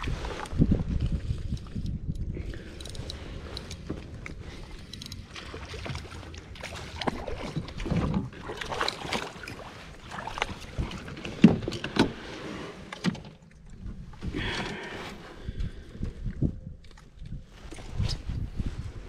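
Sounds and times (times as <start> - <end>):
water splashing and sloshing: 0.0 - 19.0
knocks and rattles of handling: 10.3 - 12.2.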